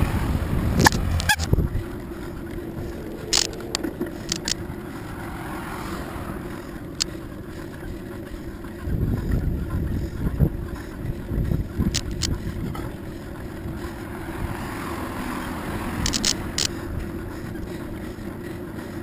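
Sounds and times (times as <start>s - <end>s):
wind buffeting the microphone: 0.0s - 4.8s, 8.7s - 14.6s
bicycle tyres on asphalt: 0.0s - 19.0s
short sharp clicks and rattles: 3.3s - 4.6s, 11.9s - 12.4s, 16.0s - 16.8s.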